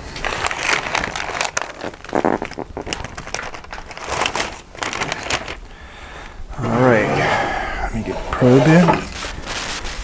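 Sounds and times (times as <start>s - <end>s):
paper crackles: 0.0s - 5.7s, 8.5s - 10.0s
paper crinkling and rustling: 0.0s - 5.7s, 8.3s - 10.0s.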